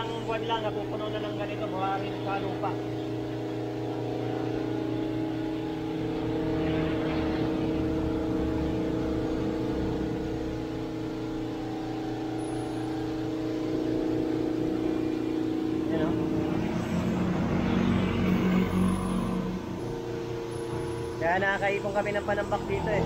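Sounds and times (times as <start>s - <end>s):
pressure washer motor humming: 0.0s - 23.0s.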